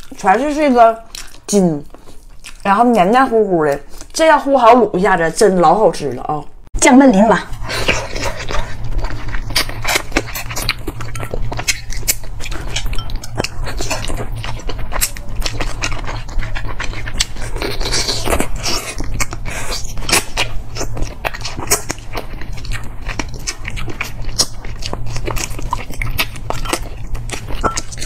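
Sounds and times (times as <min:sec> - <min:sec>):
low steady hum: 0:00.0 - 0:28.0
chewing mouth clicks and smacks: 0:01.1 - 0:02.7, 0:08.4 - 0:28.0.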